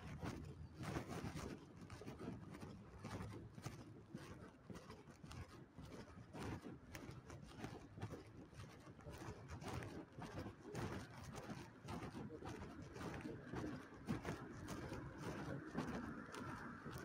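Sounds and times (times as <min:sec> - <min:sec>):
footsteps on pavement: 0:09.8 - 0:17.0.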